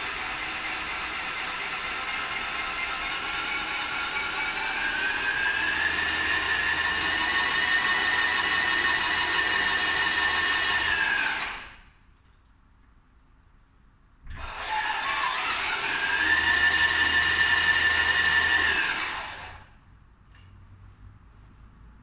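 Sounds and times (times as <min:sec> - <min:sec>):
paint sprayer motor whine: 0:14.3 - 0:19.7.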